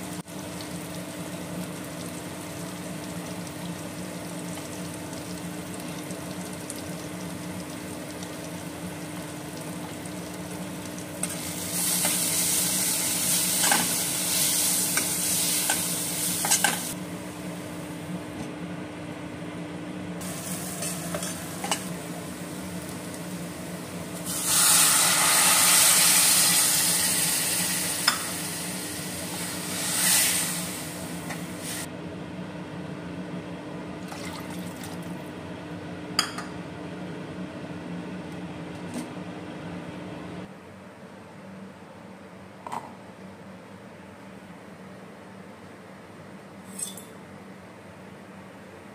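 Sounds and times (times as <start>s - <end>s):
onions sizzling in oil: 0.0s - 18.0s, 20.2s - 31.9s.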